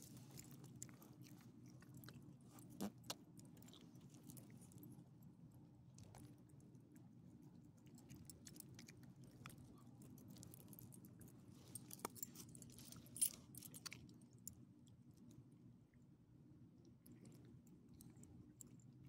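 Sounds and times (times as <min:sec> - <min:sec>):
dogs chewing food: 0:00.0 - 0:04.9
faint low hum: 0:00.0 - 0:19.0.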